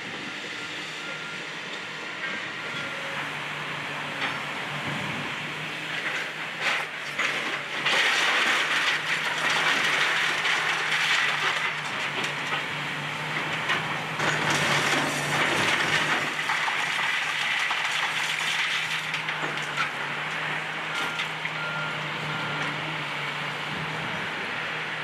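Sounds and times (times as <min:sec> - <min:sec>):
diesel engine drone: 0:00.0 - 0:25.0
bricks crunching and clattering: 0:06.0 - 0:12.8, 0:13.4 - 0:20.4.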